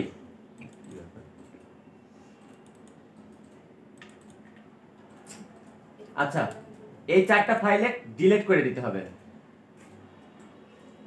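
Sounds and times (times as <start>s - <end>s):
quiet room noise: 0.0s - 11.0s
faint computer mouse clicks: 2.4s - 4.4s.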